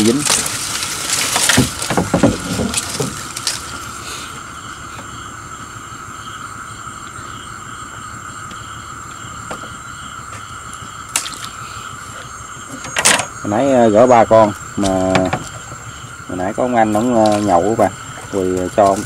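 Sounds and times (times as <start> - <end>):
palm fronds rustling and scraping: 0.0 - 5.2, 9.3 - 19.0
insects high tones: 0.0 - 19.0
soft insect chirp: 0.0 - 19.0.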